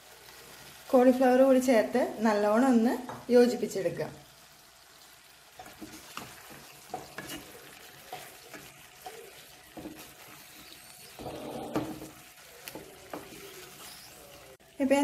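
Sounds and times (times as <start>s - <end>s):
light sizzle: 0.0s - 15.0s
wooden spatula scraping pan: 5.6s - 14.3s.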